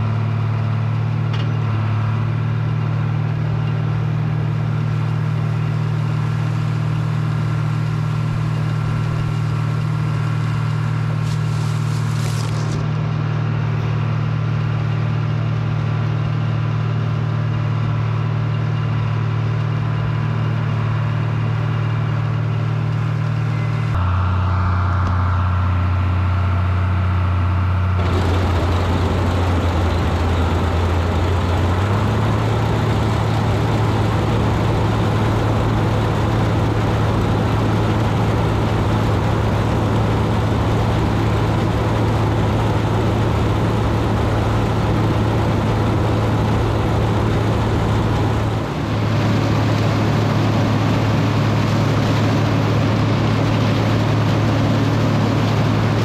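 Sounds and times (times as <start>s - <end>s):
tractor engine hum: 0.0s - 56.0s
corn picker clatter: 6.5s - 13.0s, 28.0s - 56.0s.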